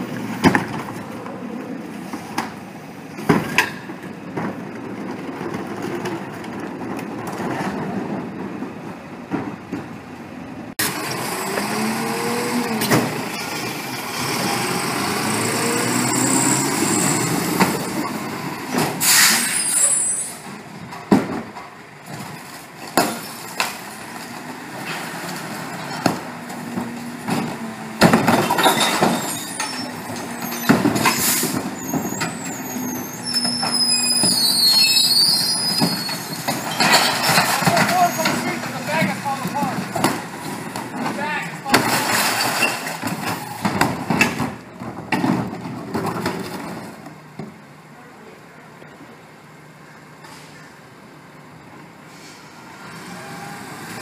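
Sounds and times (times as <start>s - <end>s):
garbage truck engine running: 0.0s - 48.0s
high squealing: 14.2s - 18.2s, 19.0s - 20.4s, 28.5s - 39.3s
bins banging into hopper: 24.8s - 32.6s, 35.6s - 46.9s.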